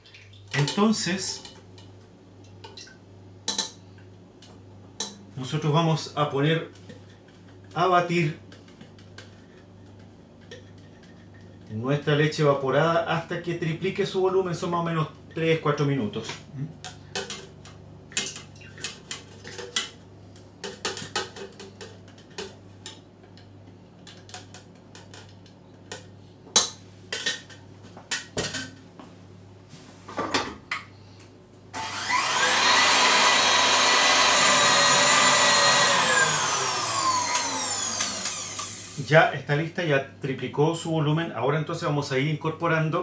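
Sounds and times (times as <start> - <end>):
stand mixer motor whine: 31.8 - 39.1.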